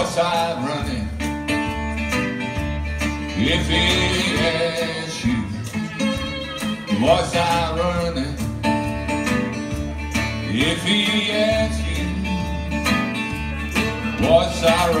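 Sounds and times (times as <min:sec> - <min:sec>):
strummed acoustic guitar: 0:00.0 - 0:15.0
harmonica wailing: 0:03.3 - 0:08.2, 0:12.0 - 0:15.0.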